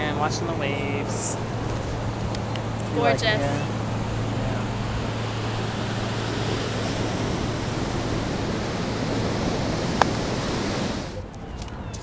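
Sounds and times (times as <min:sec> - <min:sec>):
ocean surf breaking on beach: 0:03.0 - 0:11.2.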